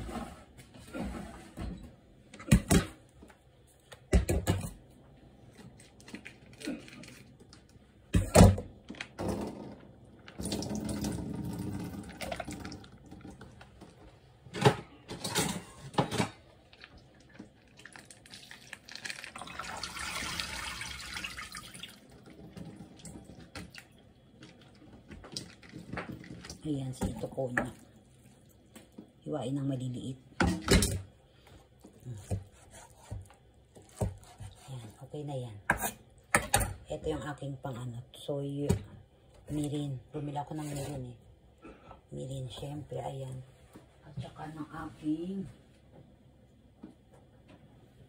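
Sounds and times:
water splashing in sink: 10.3 - 13.8, 16.7 - 28.9
kitchenware clattering: 14.5 - 16.5.

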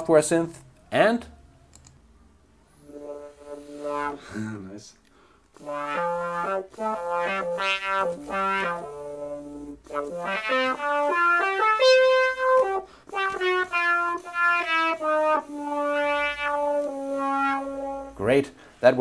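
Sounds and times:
synthesizer melody of short notes: 2.8 - 4.2, 5.6 - 18.2.

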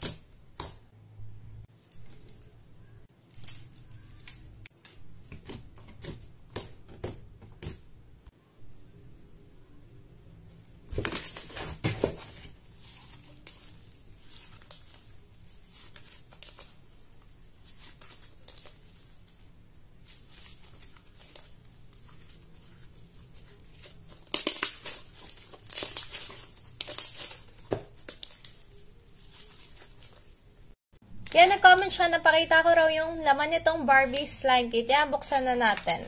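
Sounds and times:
slime crackling and tearing: 20.0 - 30.3.

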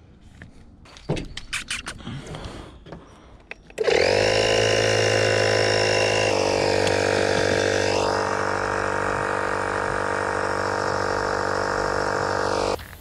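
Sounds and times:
air compressor running: 3.8 - 12.8.

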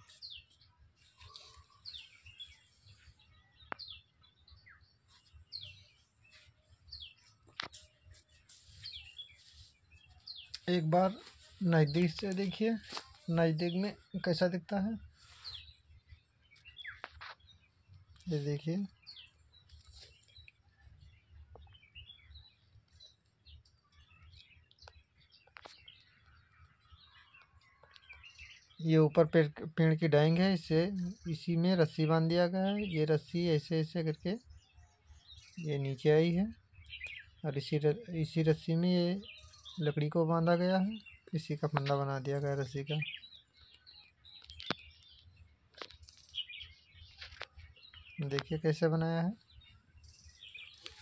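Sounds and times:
birds chirping: 0.0 - 51.0
small clicks: 44.4 - 45.0.

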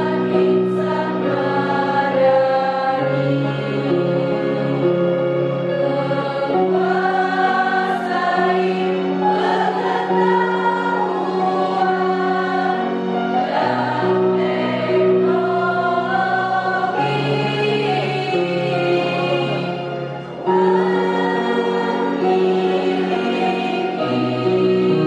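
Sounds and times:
female choir singing in harmony: 0.0 - 25.0.

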